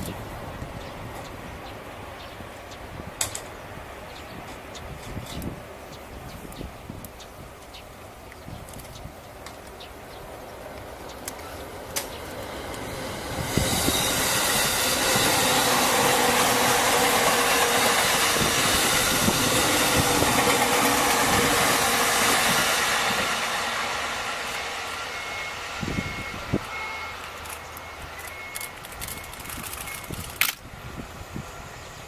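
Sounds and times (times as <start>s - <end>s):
wheels clacking over rail joints: 8.6s - 23.7s
train rushing past: 10.0s - 32.0s.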